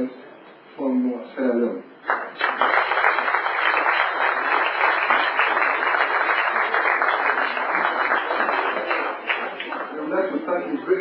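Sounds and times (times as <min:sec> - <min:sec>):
audience applauding: 0:02.0 - 0:10.1.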